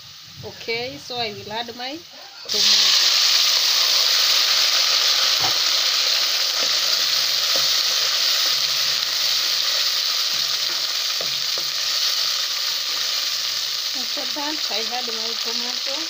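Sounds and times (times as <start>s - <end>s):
tomatoes sizzling in hot oil: 0.0s - 16.0s
wooden spoon knocking metal pot: 10.2s - 12.0s.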